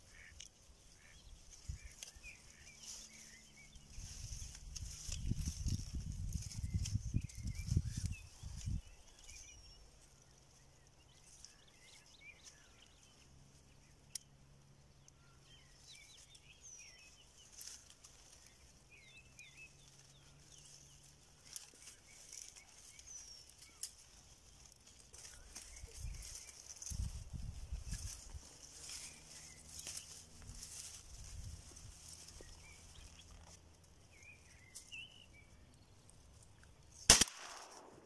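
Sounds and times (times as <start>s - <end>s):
low rumble of wind: 0.0s - 38.0s
small birds chirping: 0.0s - 38.0s.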